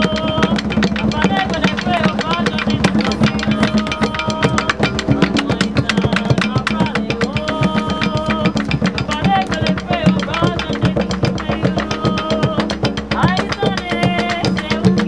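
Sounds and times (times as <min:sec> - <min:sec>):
long held notes: 0:00.0 - 0:09.0
fast steady drumming: 0:00.0 - 0:15.0.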